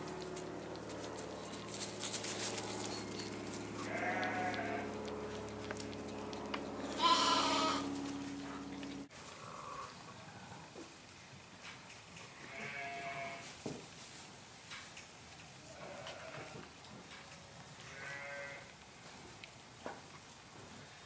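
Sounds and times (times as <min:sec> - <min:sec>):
steady low hum: 0:00.0 - 0:09.1
sheep bleating: 0:03.8 - 0:05.0, 0:06.8 - 0:08.0, 0:12.4 - 0:13.4, 0:17.9 - 0:18.7.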